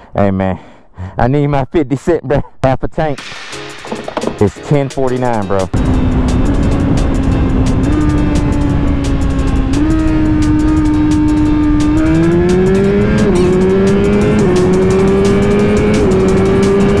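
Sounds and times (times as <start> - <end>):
motorcycle engine revving: 5.7 - 17.0.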